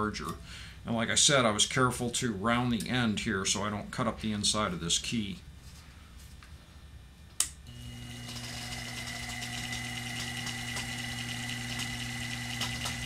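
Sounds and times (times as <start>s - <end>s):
bench motor humming: 7.7s - 13.0s.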